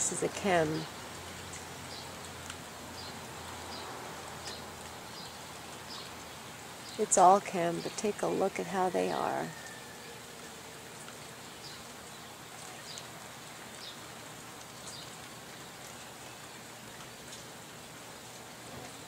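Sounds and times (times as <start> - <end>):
light rain hissing: 0.0 - 19.0.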